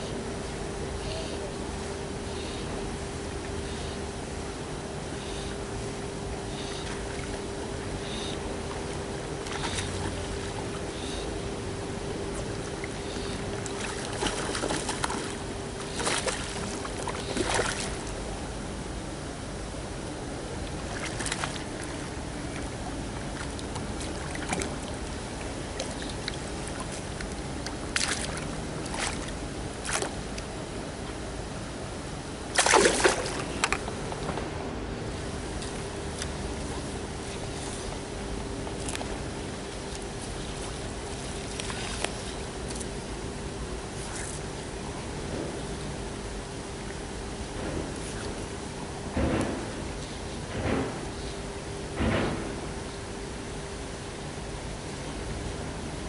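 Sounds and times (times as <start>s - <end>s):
faint steady hum: 0.0s - 56.0s
fish splashing in water: 6.4s - 11.4s, 12.2s - 18.2s, 20.7s - 30.4s, 32.5s - 34.3s.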